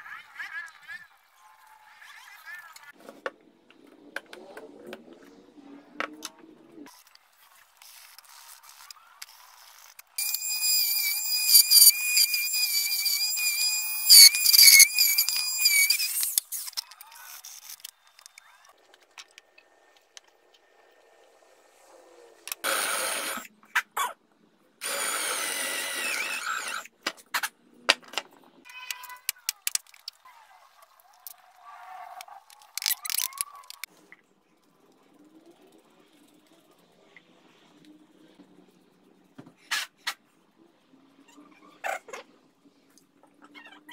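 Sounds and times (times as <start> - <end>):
orbital sander whining: 10.2 - 16.2.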